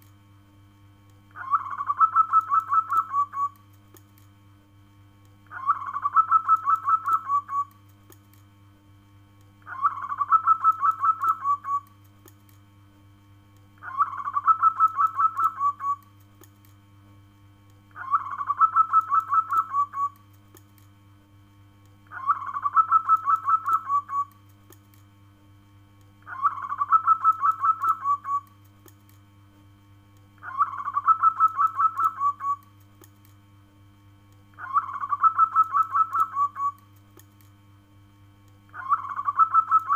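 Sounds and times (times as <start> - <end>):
dove cooing: 1.4 - 3.6, 5.5 - 7.7, 9.7 - 11.8, 13.8 - 16.0, 18.0 - 20.2, 22.1 - 24.3, 26.3 - 28.5, 30.4 - 32.6, 34.6 - 36.8, 38.8 - 39.9.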